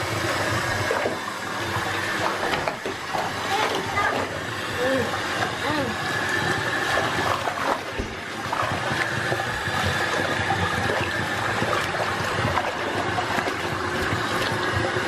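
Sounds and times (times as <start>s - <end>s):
faucet water pouring and splashing: 0.0s - 15.0s.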